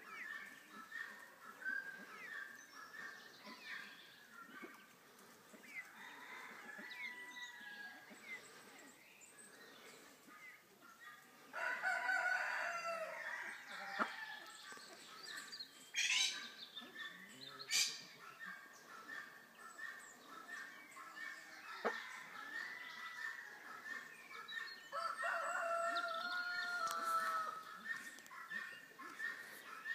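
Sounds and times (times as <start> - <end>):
faint birds chirping: 0.0 - 29.9
fowl crowing: 11.6 - 14.1, 25.0 - 27.6.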